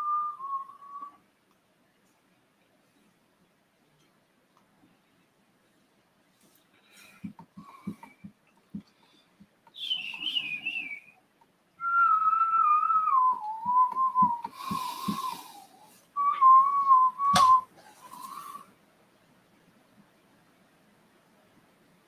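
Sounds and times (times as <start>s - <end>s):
person whistling a tune: 0.0s - 1.2s, 9.7s - 11.2s, 11.8s - 15.6s, 16.2s - 17.7s.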